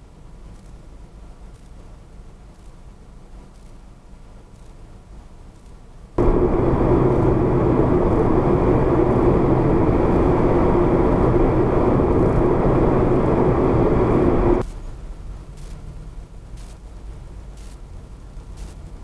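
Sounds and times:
car road and engine noise: 6.2 - 14.6
steady hum: 6.2 - 14.6.

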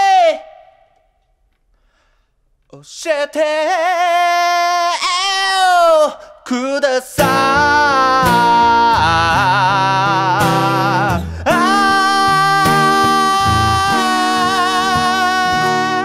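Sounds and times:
man singing with vibrato: 0.0 - 0.9, 2.7 - 16.0
strummed acoustic guitar: 7.2 - 16.0.

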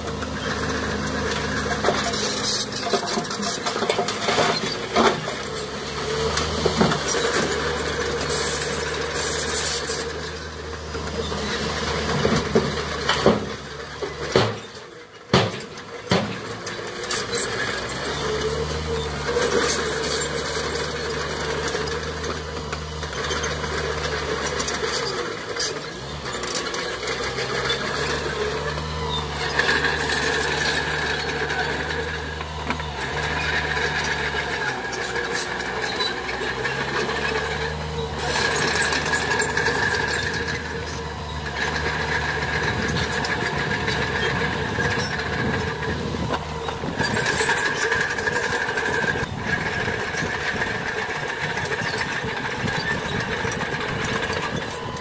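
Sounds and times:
bulldozer diesel engine running: 0.0 - 55.0
high machine squeal: 23.1 - 55.0.

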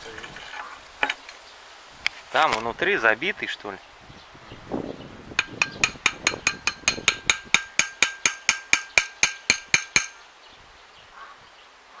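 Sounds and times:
spanner tapping on metal: 5.4 - 10.2.

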